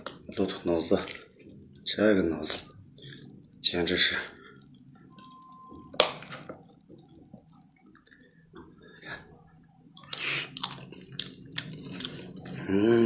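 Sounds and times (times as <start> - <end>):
slurping and mouth sounds: 10.0 - 12.7.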